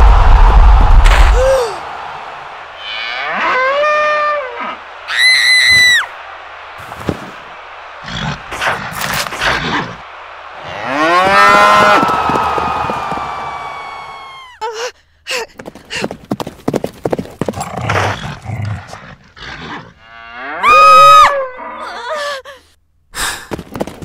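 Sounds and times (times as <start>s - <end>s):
bull mooing: 2.8s - 4.8s
bull grunts: 17.6s - 20.0s.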